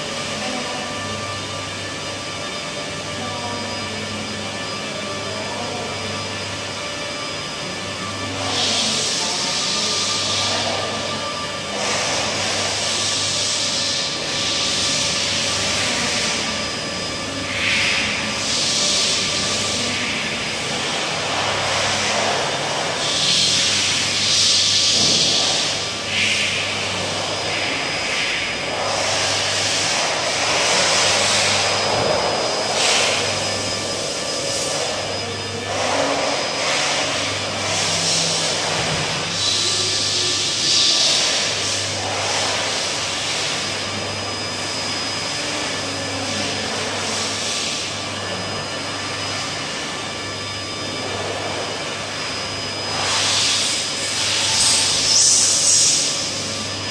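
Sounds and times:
machine drone with whine: 0.0s - 56.9s
power tool running with airy hiss: 0.0s - 56.9s.

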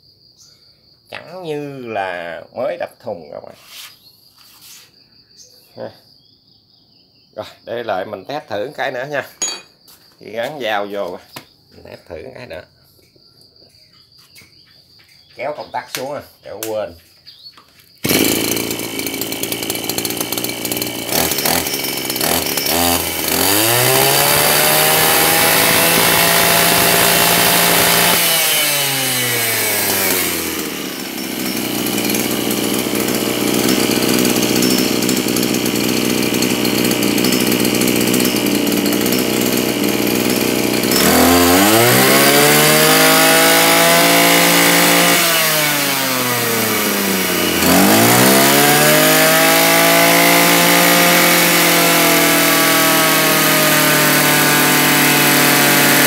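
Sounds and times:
brush cutter engine idling and revving: 18.0s - 56.0s.

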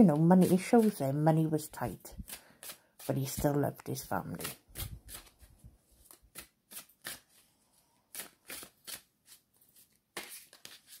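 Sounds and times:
cards being shuffled: 4.3s - 7.5s, 8.1s - 11.0s.

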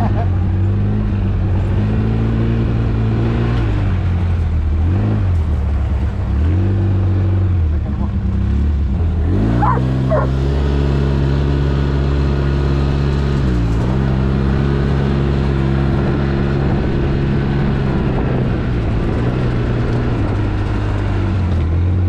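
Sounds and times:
off-road vehicle engine revving: 0.0s - 22.0s
dog barking: 9.6s - 10.4s.

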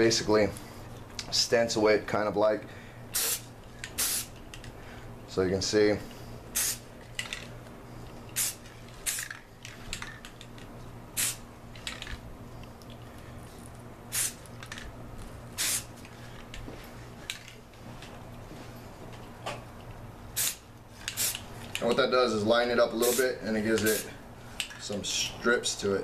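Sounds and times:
low steady hum: 0.0s - 26.0s
spray can hissing: 3.2s - 4.4s, 6.6s - 6.9s, 8.4s - 9.3s, 11.2s - 11.4s, 14.1s - 14.5s, 15.6s - 15.9s, 20.4s - 21.5s, 23.0s - 24.1s.

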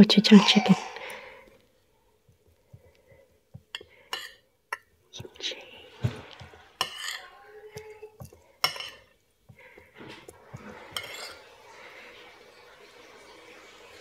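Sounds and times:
fork and spoon scraping a plate: 3.7s - 4.9s, 6.4s - 9.2s, 10.1s - 11.5s.

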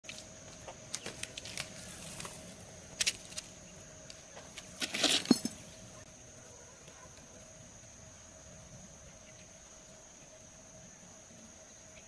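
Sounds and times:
scuffling: 4.4s - 5.7s.

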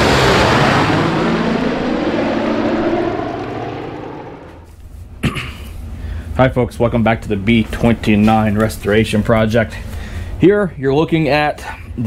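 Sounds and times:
rushing noise: 0.0s - 4.7s
propeller aircraft engines droning: 0.0s - 4.8s.

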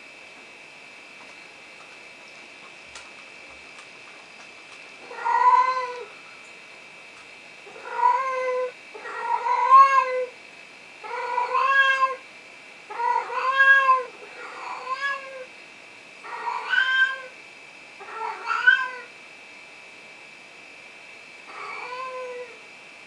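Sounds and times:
cat meowing: 5.0s - 6.1s, 11.1s - 12.2s, 12.9s - 15.5s, 18.0s - 19.1s.

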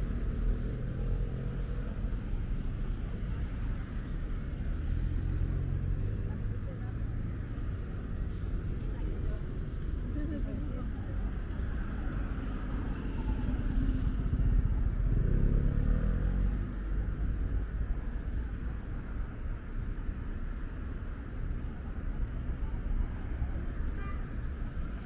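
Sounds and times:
traffic rumble: 0.0s - 25.0s
vehicle engine passing close: 13.2s - 16.9s.

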